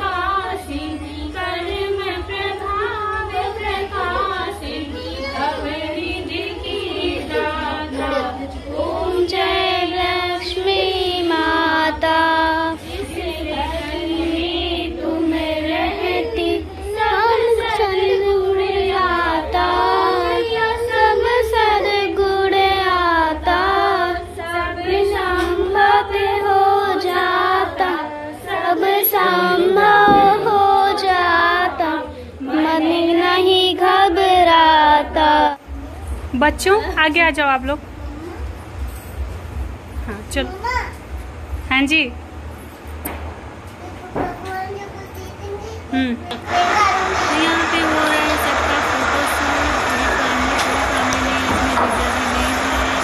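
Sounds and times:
women singing a hymn together: 0.0 - 35.6, 46.6 - 53.0.

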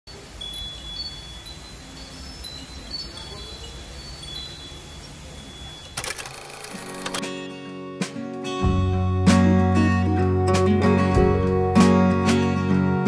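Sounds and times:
high clear chiming tones: 0.2 - 6.7
sharp clicks: 5.8 - 7.2.

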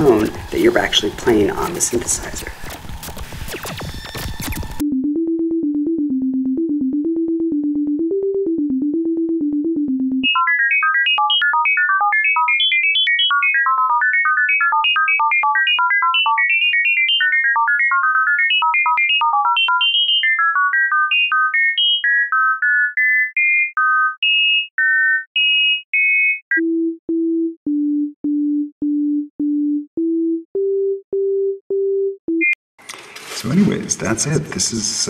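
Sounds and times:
low sine tone melody: 4.8 - 14.7, 26.6 - 32.5.

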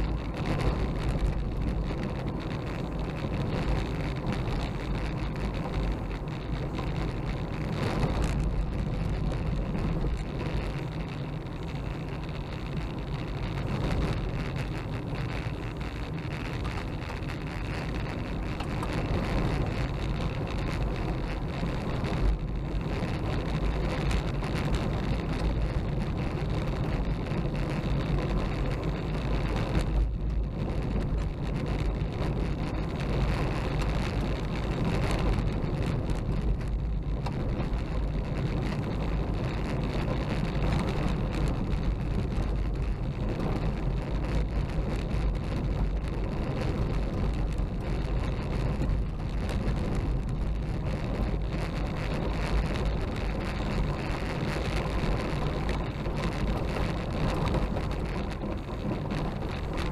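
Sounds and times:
car engine and tyre drone: 0.0 - 59.9
gravel crackling under tyres: 0.0 - 59.9.

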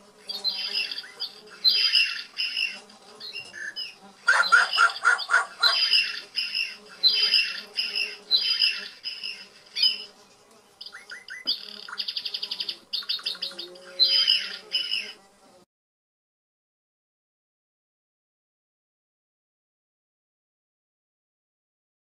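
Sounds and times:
hens squawking and cackling: 0.2 - 10.0.

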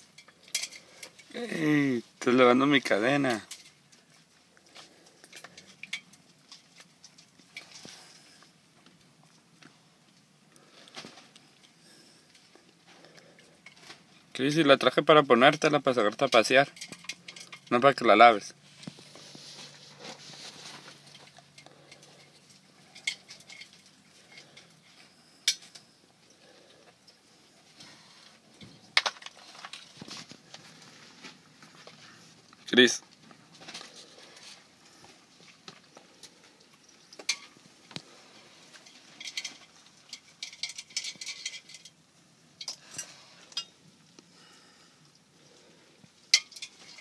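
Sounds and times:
leash clinking against metal pot: 16.2 - 17.8.

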